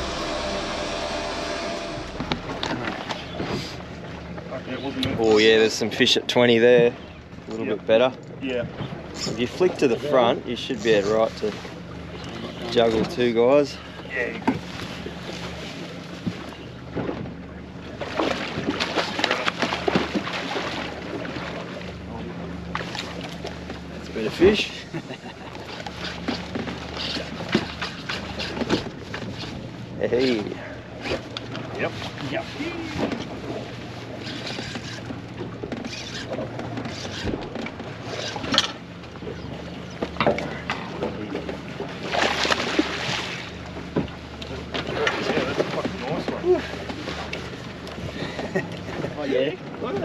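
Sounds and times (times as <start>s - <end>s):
boat engine running: 0.0s - 50.0s
water splashing: 25.3s - 47.9s.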